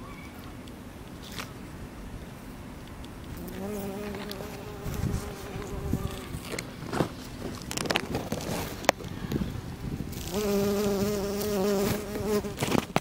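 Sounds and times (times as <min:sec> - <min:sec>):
bumblebee buzzing: 0:03.3 - 0:06.6, 0:10.0 - 0:13.0.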